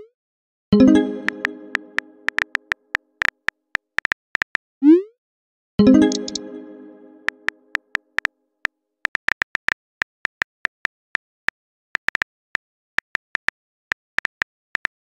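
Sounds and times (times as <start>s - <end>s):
phone keyboard clicks: 2.2s - 2.8s.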